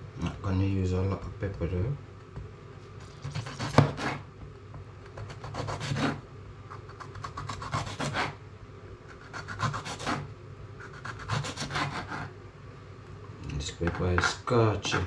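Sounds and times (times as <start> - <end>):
knife sawing through vegetables: 3.0 - 4.2, 5.2 - 6.2, 6.9 - 8.4, 9.2 - 10.2, 10.8 - 12.3.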